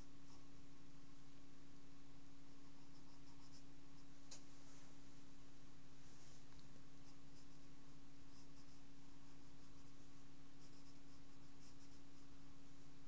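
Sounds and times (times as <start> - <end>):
steady low hum: 0.0 - 13.0
pencil scratching on paper: 10.5 - 12.3.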